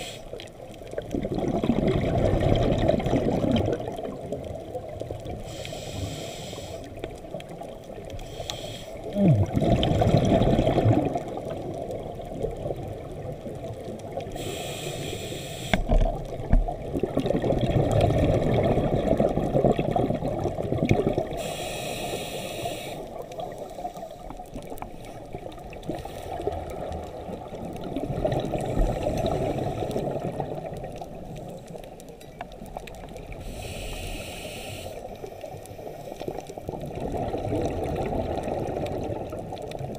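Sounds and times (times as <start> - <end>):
scuba regulator hiss: 0.0 - 0.3, 5.4 - 6.9, 8.2 - 9.0, 14.3 - 15.9, 21.3 - 23.1, 33.4 - 35.1
bubbling rumble of exhaled air: 0.0 - 5.6, 9.0 - 14.8, 15.7 - 21.8, 22.5 - 39.9.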